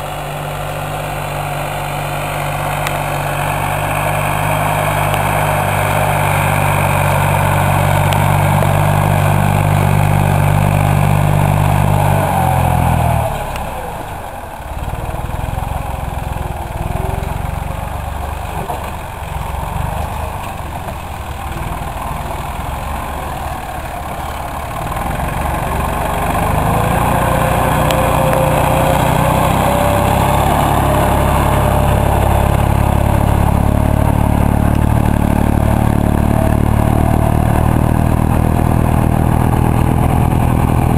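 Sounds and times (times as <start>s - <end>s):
tractor diesel engine under load: 0.0s - 40.9s
rising whine: 21.8s - 40.9s.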